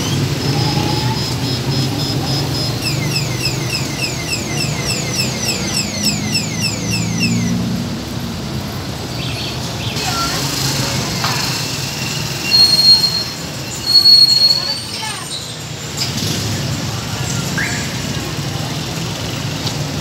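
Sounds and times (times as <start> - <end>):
electronic alarm beeping: 0.0 - 7.6, 12.1 - 14.8
street traffic engines: 0.0 - 20.0.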